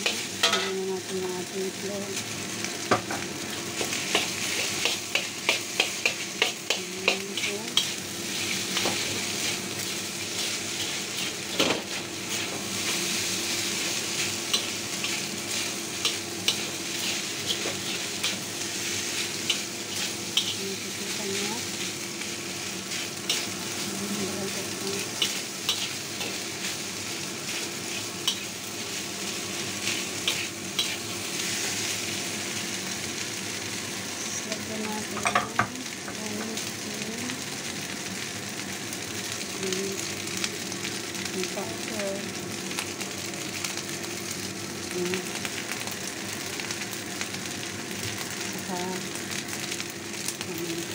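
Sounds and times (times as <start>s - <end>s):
rice sizzling in a wok: 0.0s - 50.9s
spatula clicking against pan: 4.1s - 7.2s
metal spatula scraping a wok: 29.8s - 31.7s.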